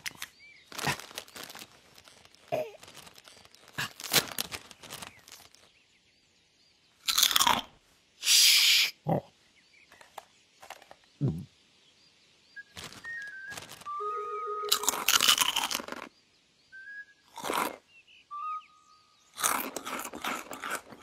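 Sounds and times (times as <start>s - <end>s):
crisps crunching: 0.0s - 5.8s, 7.0s - 7.7s, 12.6s - 16.1s, 17.3s - 17.8s, 19.3s - 21.0s
snack packet rustling: 0.0s - 5.8s, 12.7s - 16.1s, 17.4s - 17.8s, 19.4s - 21.0s
loud hiss: 8.2s - 9.0s.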